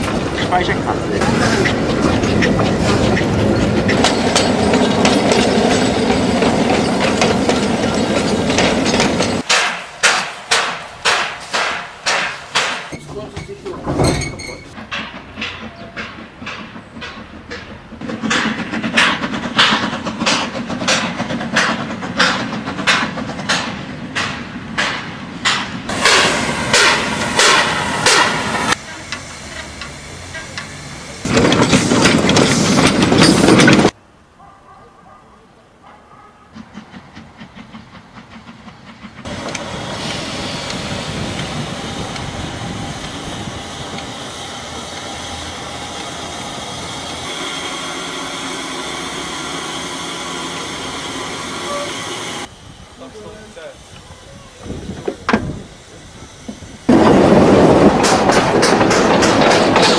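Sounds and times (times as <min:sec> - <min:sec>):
continuous steam rush: 0:00.0 - 0:13.9, 0:14.7 - 0:34.0, 0:36.4 - 0:59.9
steam locomotive chuffing: 0:00.0 - 0:34.0, 0:36.4 - 0:59.9
train wheels rumbling on rails: 0:00.0 - 0:34.0, 0:36.4 - 0:59.9
wheels clicking over rail joints: 0:00.0 - 0:34.0, 0:53.0 - 0:59.9.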